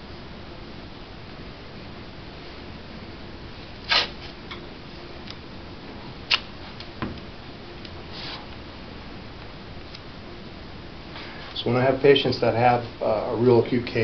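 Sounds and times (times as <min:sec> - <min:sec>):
tape ripping: 0:03.8 - 0:04.4, 0:06.3 - 0:06.5.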